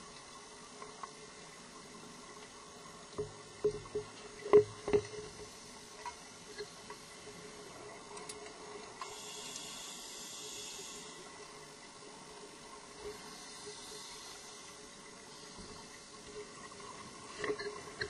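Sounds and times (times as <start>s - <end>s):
steady hiss: 4.2s - 18.0s.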